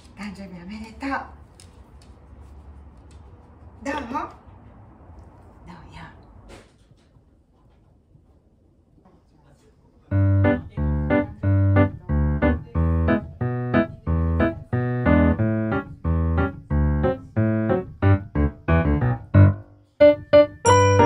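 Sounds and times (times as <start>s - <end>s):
keyboard playing short chords: 10.1s - 21.0s.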